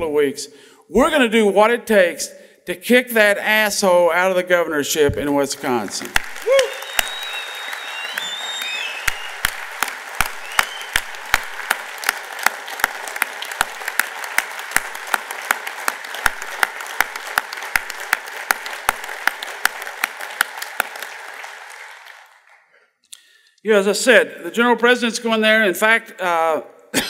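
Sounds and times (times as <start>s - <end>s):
crowd applauding: 5.7s - 23.0s
sharp claps close by: 6.0s - 22.7s
short whistles: 6.6s - 9.5s, 10.4s - 11.0s.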